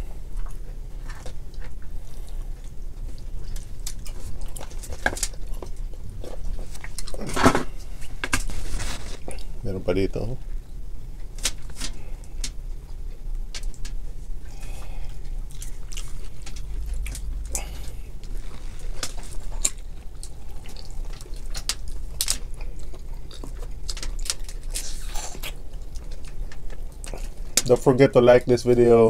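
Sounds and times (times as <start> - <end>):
wet chewing: 0.3 - 8.5, 11.2 - 27.7
crab shells cracking: 15.5 - 27.7.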